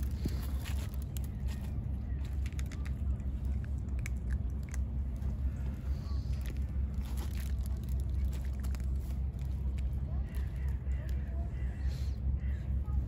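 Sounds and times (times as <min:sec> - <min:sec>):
cats crunching dry kibble: 0:00.0 - 0:11.8
steady low rumble: 0:00.0 - 0:13.0.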